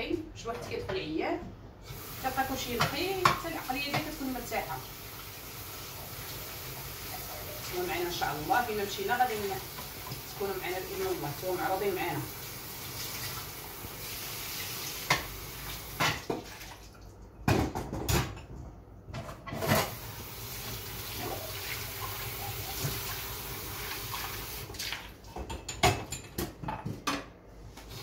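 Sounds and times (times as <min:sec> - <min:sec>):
water running from tap: 0:01.8 - 0:17.0, 0:19.9 - 0:25.1.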